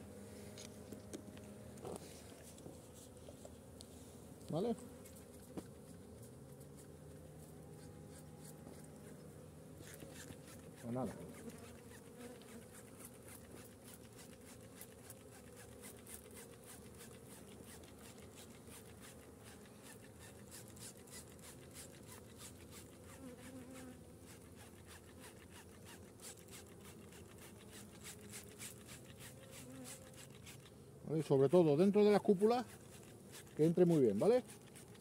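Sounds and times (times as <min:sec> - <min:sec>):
honeybees buzzing: 0:00.0 - 0:35.0.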